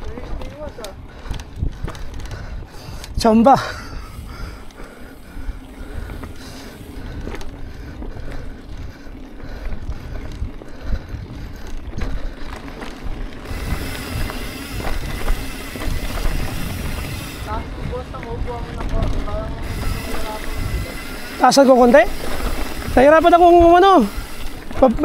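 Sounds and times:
wind rumbling on microphone: 0:00.0 - 0:25.0
bike knocks and rattles: 0:11.4 - 0:25.0.

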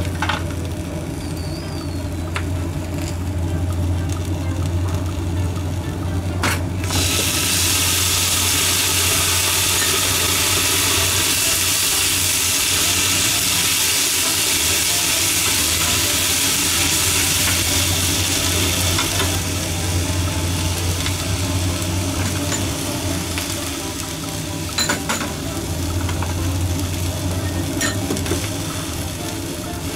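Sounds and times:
low hum: 0:00.0 - 0:13.7, 0:15.0 - 0:29.8
food sizzling in a frying pan: 0:00.0 - 0:29.9.

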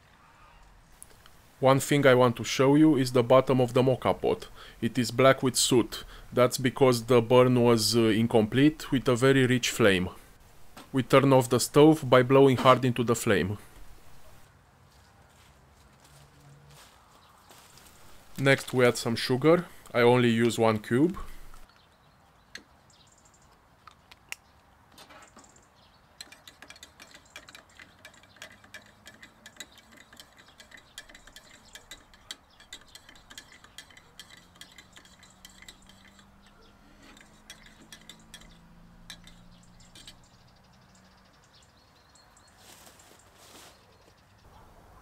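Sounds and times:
teaspoon clinking in ceramic cup: 0:26.2 - 0:36.3.

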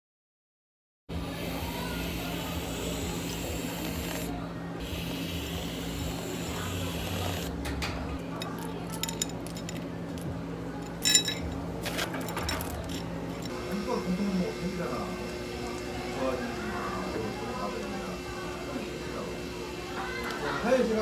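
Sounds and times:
steady low hum: 0:01.1 - 0:20.3
glassware and dishes clinking: 0:07.8 - 0:09.9, 0:10.8 - 0:13.5.

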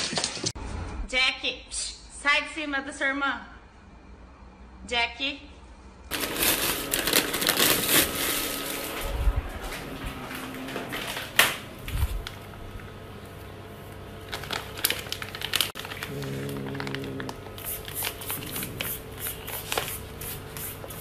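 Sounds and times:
plastic bags rustling: 0:06.1 - 0:18.8.

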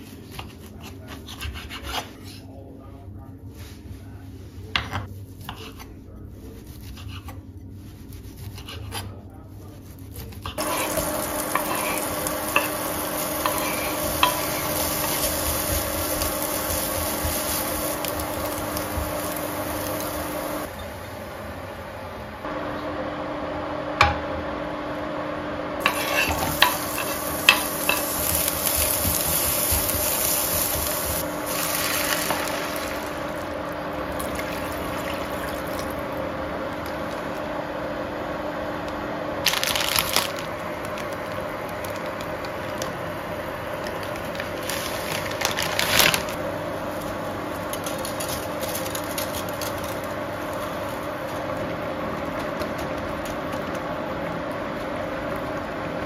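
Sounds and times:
onions frying in butter: 0:10.5 - 0:21.4, 0:25.8 - 0:37.7, 0:39.4 - 0:55.6.

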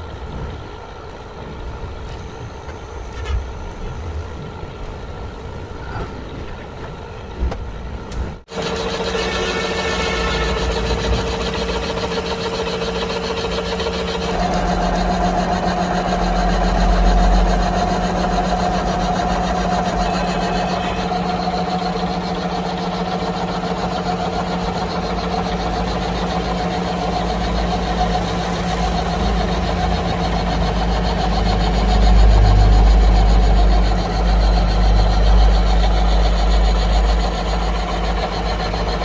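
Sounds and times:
lathe running with whine: 0:08.5 - 0:39.0.

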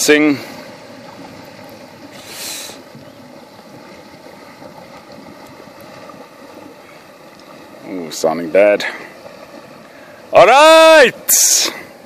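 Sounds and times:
water churning: 0:00.0 - 0:12.0
brief hiss: 0:02.1 - 0:02.8.

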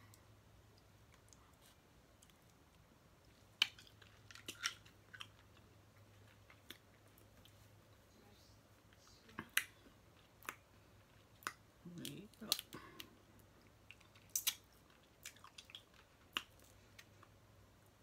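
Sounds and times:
close-up chewing: 0:00.1 - 0:08.0, 0:08.8 - 0:18.0
crab shells cracking: 0:03.5 - 0:05.6, 0:13.9 - 0:17.1.

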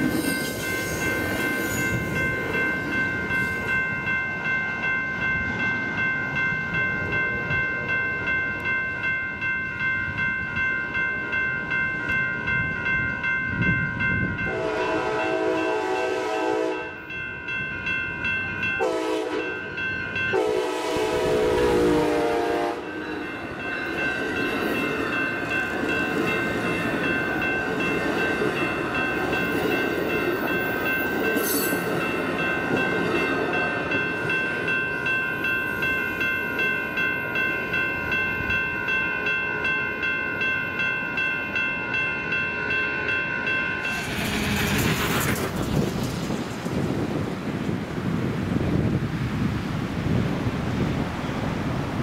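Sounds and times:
train rumbling past: 0:00.0 - 0:52.0
train air horn blasts: 0:14.5 - 0:17.0, 0:18.8 - 0:19.6, 0:20.3 - 0:22.9
train wheel clatter: 0:43.8 - 0:47.8.

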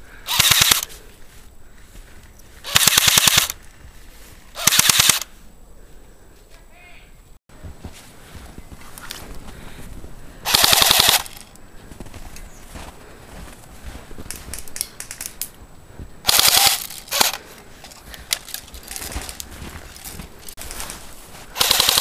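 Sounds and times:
airsoft rifle full-auto bursts: 0:00.3 - 0:00.9, 0:02.6 - 0:03.6, 0:04.6 - 0:05.3, 0:10.4 - 0:11.4, 0:16.3 - 0:17.4, 0:21.6 - 0:22.0.

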